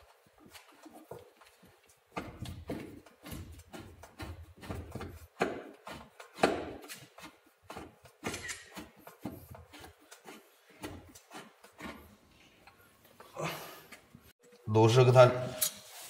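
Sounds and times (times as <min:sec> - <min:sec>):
screwdriver clicking and scraping: 0:05.8 - 0:12.0.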